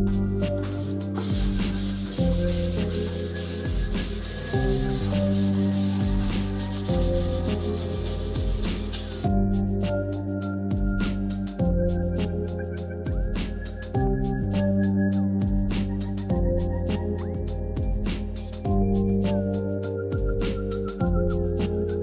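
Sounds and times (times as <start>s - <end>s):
background music: 0.0s - 22.0s
hand sanding metal tube: 0.4s - 9.3s.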